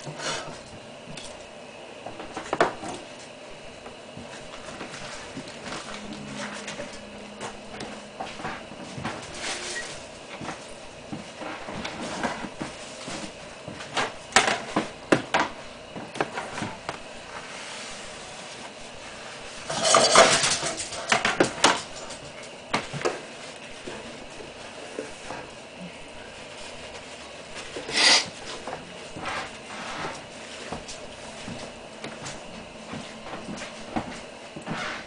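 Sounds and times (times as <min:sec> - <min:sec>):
dishes and utensils clattering: 0:19.7 - 0:22.2.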